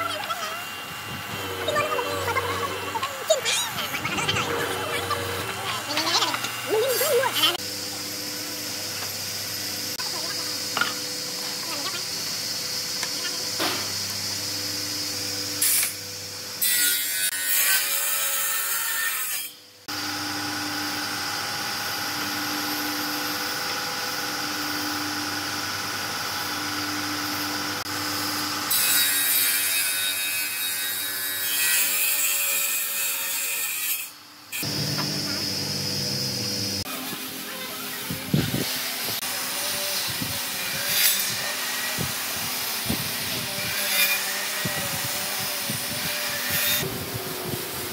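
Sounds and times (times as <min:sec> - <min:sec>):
woodworking saw motor hum: 0:00.0 - 0:16.6, 0:19.8 - 0:28.8, 0:34.6 - 0:47.9
saw rasping through wood: 0:00.2 - 0:07.6, 0:38.5 - 0:46.9.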